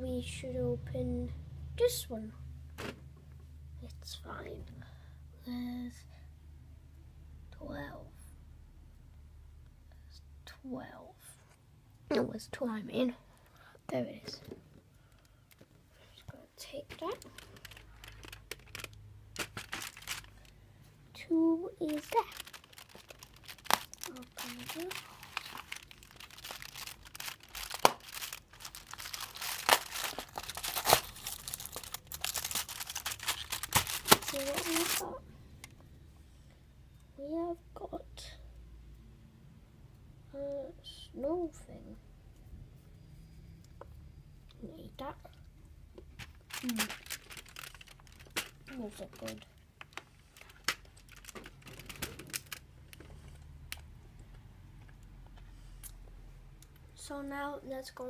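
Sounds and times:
sharp crackles and snaps: 0:16.9 - 0:20.6, 0:21.8 - 0:35.0, 0:46.2 - 0:53.1
cardboard tearing and crinkling: 0:17.2 - 0:20.5, 0:21.8 - 0:35.2, 0:46.5 - 0:49.4.

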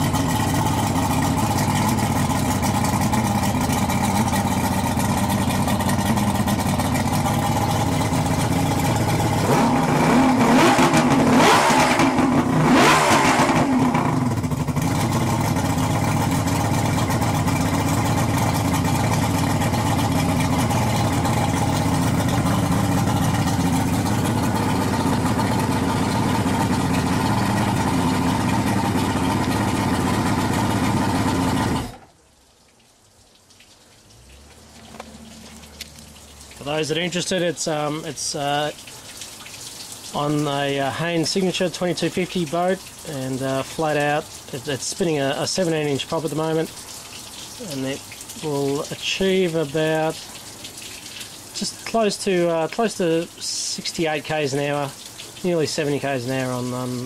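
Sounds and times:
outboard motor running and revving: 0:00.0 - 0:32.0.

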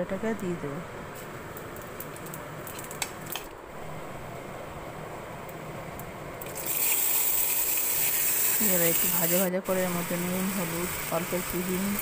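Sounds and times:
spices sizzling in hot oil: 0:06.5 - 0:12.0.

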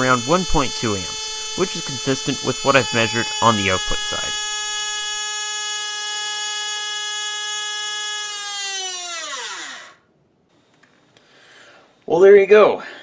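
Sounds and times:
electric motor whining: 0:00.0 - 0:10.0.

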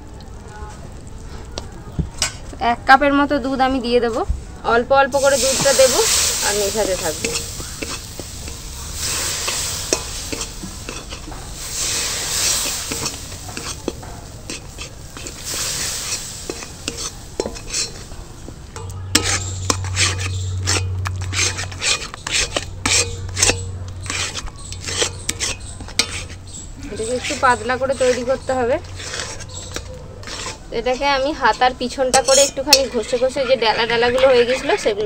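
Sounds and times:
roux sizzling: 0:00.0 - 0:35.0
ladle scraping a metal pan: 0:05.2 - 0:35.0.

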